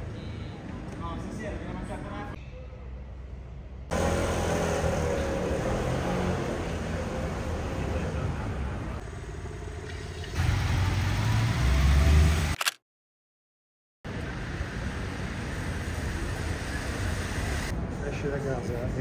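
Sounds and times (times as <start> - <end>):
car engines: 2.9 - 12.6, 14.1 - 19.0
loud engine rumble: 3.9 - 12.6.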